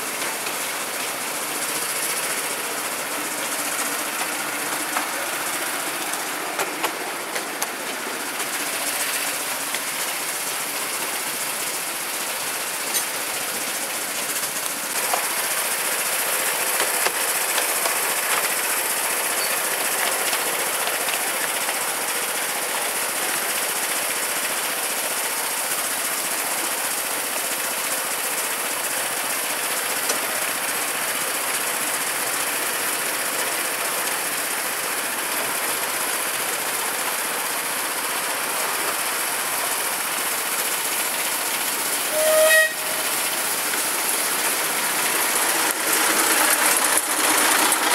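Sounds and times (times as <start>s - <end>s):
rail clicks: 0.0s - 47.9s
wheels rolling on rails: 0.0s - 47.9s
small engine note: 42.0s - 43.3s.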